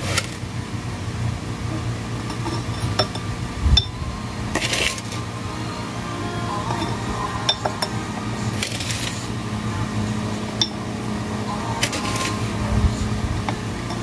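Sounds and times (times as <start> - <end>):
spoon clinking glass jar: 2.2 - 3.9, 6.7 - 8.0, 10.6 - 10.8
powder scraping rush: 8.3 - 9.4.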